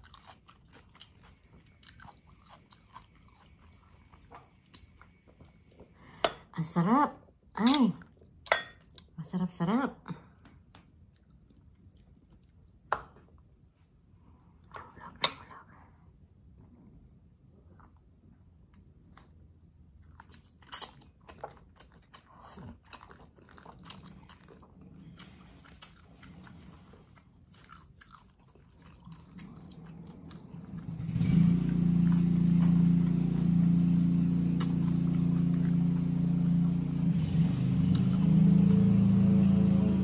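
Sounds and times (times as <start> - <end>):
close-up chewing and biting: 0.0 - 6.0, 18.7 - 40.0
loud low droning hum: 29.3 - 40.0.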